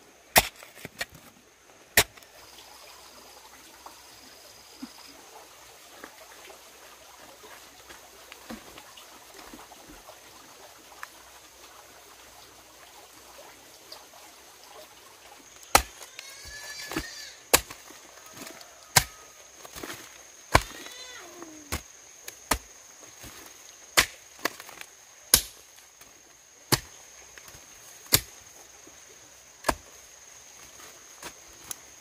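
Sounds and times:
blade chopping into wood: 2.0s - 2.2s, 15.7s - 16.0s, 24.0s - 25.6s, 28.1s - 28.4s.

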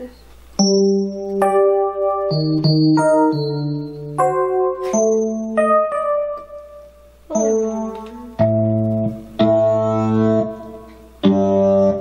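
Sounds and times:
keyboard chords played slowly: 0.0s - 12.0s.

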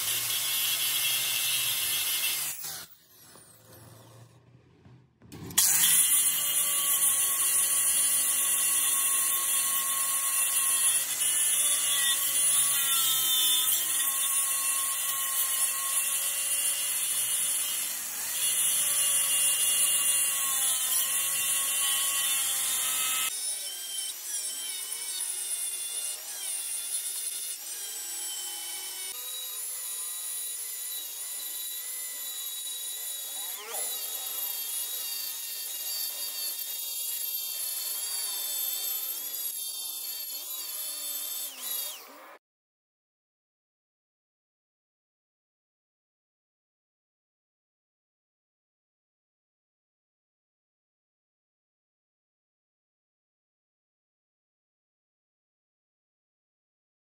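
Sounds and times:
power tool high whine: 5.5s - 42.4s.

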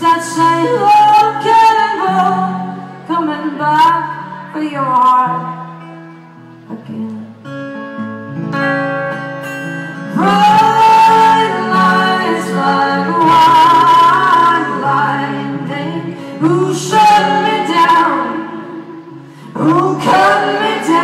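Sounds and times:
voices singing in harmony: 10.0s - 21.0s.

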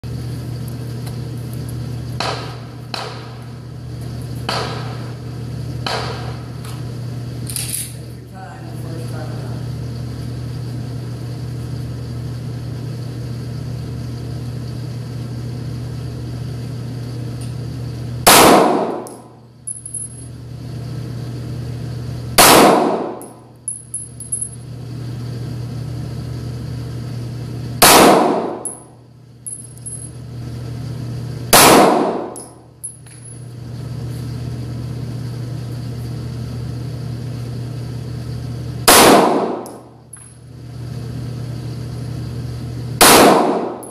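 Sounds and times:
steady low hum: 0.0s - 43.9s
pistol shots echoing: 18.3s - 19.1s, 22.4s - 23.2s, 27.8s - 28.6s, 31.6s - 32.4s, 38.9s - 39.7s, 43.0s - 43.9s.

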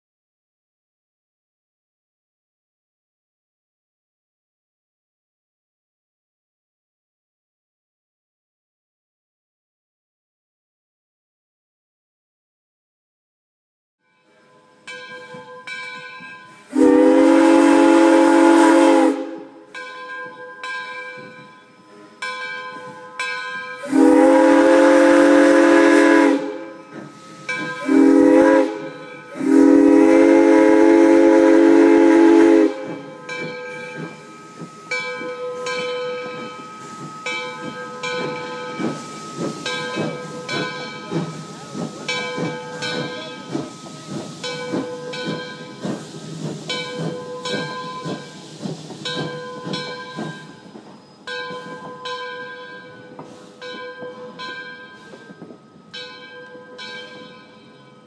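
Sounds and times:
train chuffing and clatter: 14.7s - 58.0s
steam whistle blasts: 16.7s - 19.7s, 23.8s - 33.3s.

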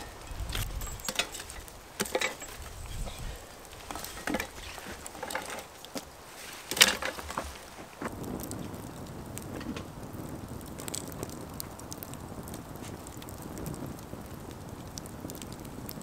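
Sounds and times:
sticks clattering on iron lids: 0.0s - 8.0s.

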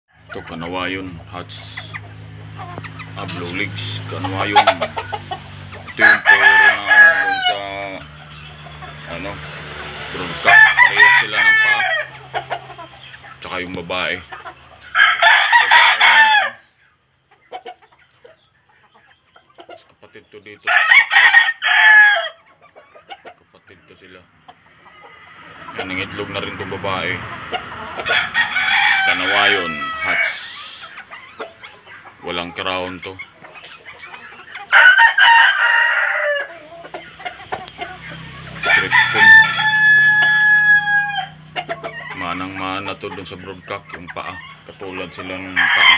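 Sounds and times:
rooster crowing: 5.9s - 7.8s, 10.3s - 12.2s, 14.9s - 16.7s, 20.7s - 22.4s, 27.6s - 30.9s, 34.7s - 36.8s, 38.4s - 41.5s, 45.5s - 45.9s.

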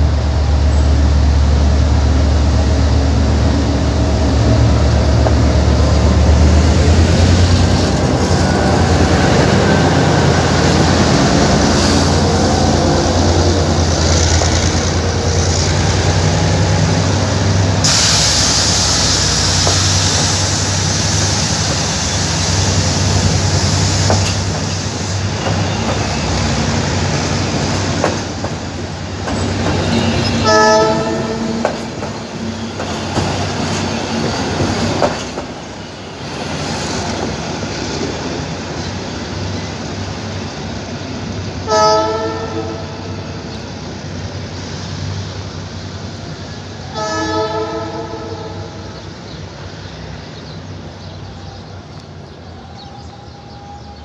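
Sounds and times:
locomotive engine hum: 0.0s - 54.0s
train wheels on rails: 0.0s - 54.0s
train horn blasts: 30.0s - 31.8s, 41.6s - 43.4s, 46.9s - 48.8s.

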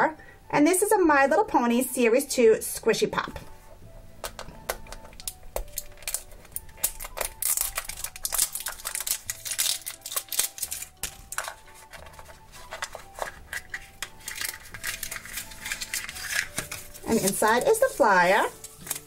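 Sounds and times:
nails clicking on hard plastic: 4.2s - 11.6s
plastic wrapper crinkling and tearing: 4.3s - 19.0s.

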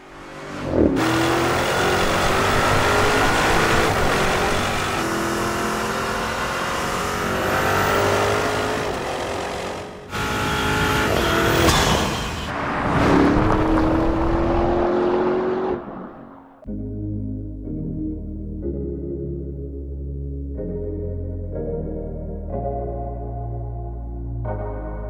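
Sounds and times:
car engine accelerating: 0.0s - 16.7s.

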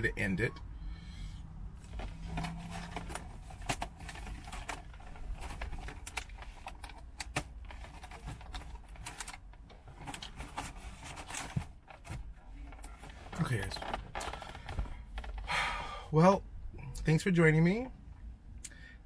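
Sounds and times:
clicking and rustling handling: 1.8s - 15.5s.

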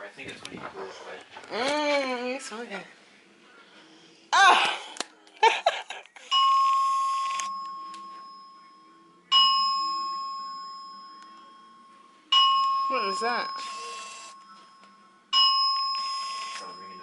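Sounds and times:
fire alarm chime: 6.3s - 17.0s.

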